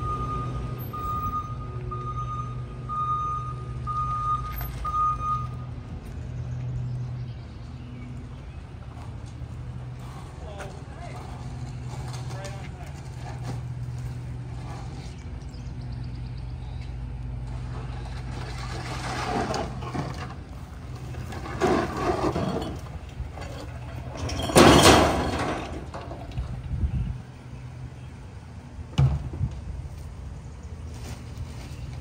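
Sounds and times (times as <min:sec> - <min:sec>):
garbage truck idling: 0:00.0 - 0:29.1.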